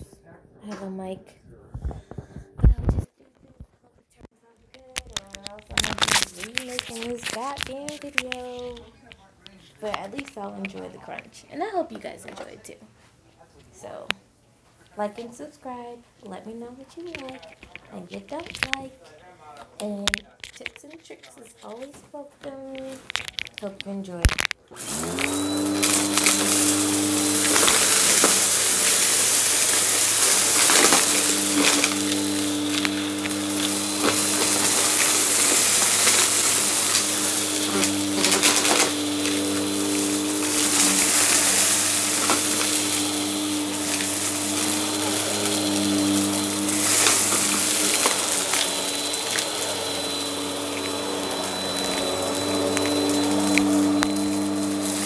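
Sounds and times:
vacuum cleaner motor humming: 0:24.7 - 0:55.0
debris crackling into vacuum: 0:24.8 - 0:55.0.

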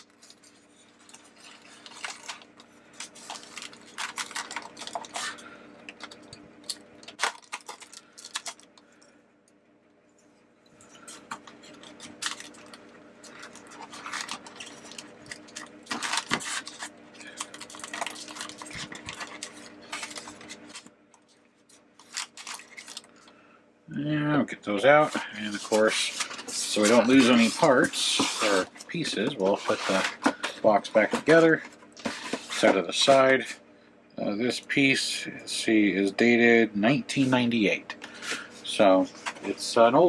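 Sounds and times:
plastic wrap crinkling: 0:00.0 - 0:09.0, 0:10.9 - 0:23.4, 0:25.0 - 0:33.3
faint steady hum: 0:00.0 - 0:40.0.

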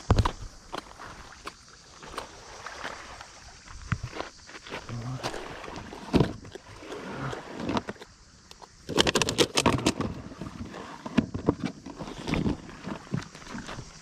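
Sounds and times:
pebbles shifting underfoot: 0:00.0 - 0:08.1.

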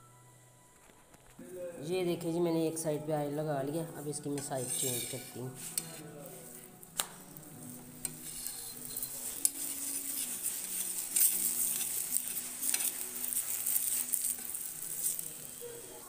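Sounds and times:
flatbread sizzling on a hot pan: 0:04.1 - 0:16.0.

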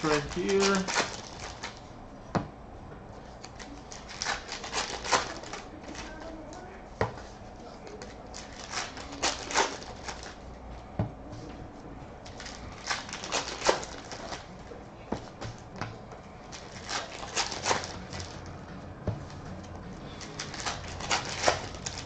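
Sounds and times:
wrapper crinkling: 0:00.0 - 0:01.8, 0:03.5 - 0:06.3, 0:07.9 - 0:10.4, 0:12.3 - 0:14.5, 0:16.5 - 0:18.5, 0:20.1 - 0:22.0.

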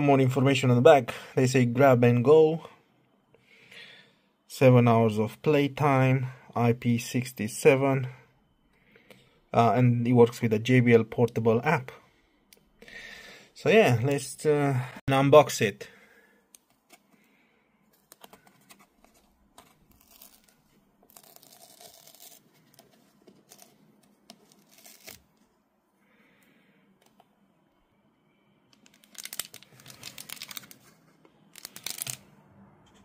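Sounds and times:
paper seal tearing: 0:19.9 - 0:22.4, 0:24.5 - 0:25.3, 0:31.6 - 0:32.2
plastic wrap crinkling: 0:28.8 - 0:32.2.

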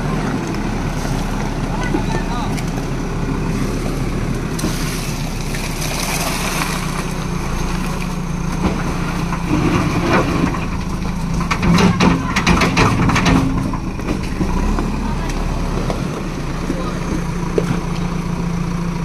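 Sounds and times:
diesel engine running: 0:00.0 - 0:19.0
bucket scraping through gravelly mix: 0:04.5 - 0:08.0, 0:08.8 - 0:14.9.

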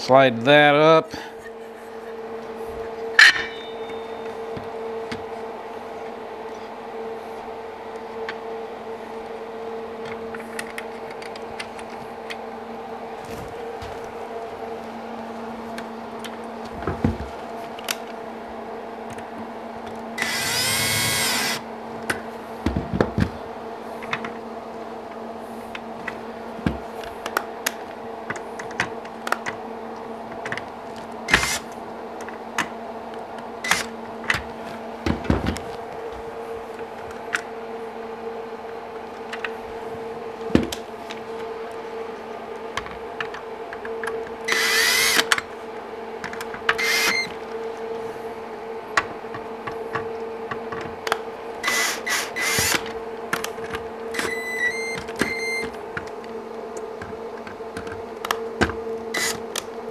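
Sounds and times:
steady background hum: 0:00.0 - 0:59.9
cordless drill driving screws: 0:20.2 - 0:21.6, 0:44.5 - 0:45.3, 0:46.8 - 0:47.3, 0:51.6 - 0:52.8.

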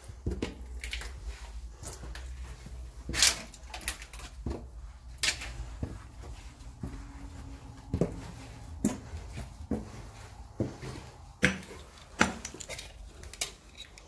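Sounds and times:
footsteps on gritty concrete stairs: 0:00.0 - 0:13.7
low steady rumble: 0:03.7 - 0:12.0.

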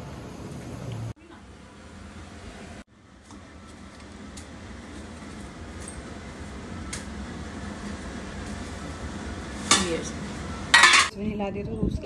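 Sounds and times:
metal lid clanking on pot: 0:10.7 - 0:11.1.

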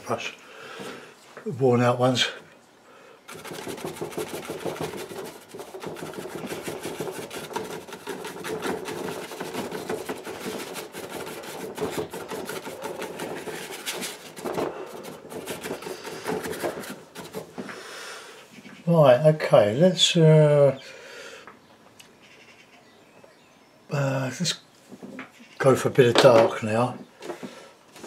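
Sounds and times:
brush scrubbing paint on board: 0:03.3 - 0:17.7.

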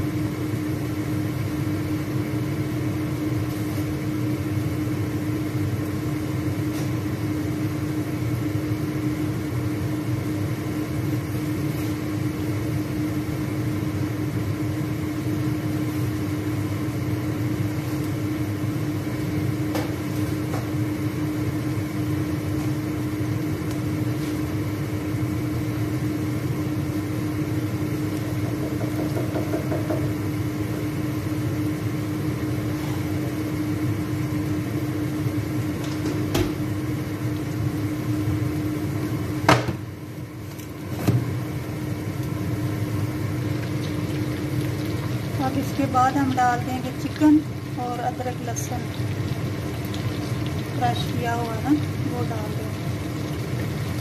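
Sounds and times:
low machine hum: 0:00.0 - 0:54.0
onions sizzling in a pan: 0:41.9 - 0:54.0.

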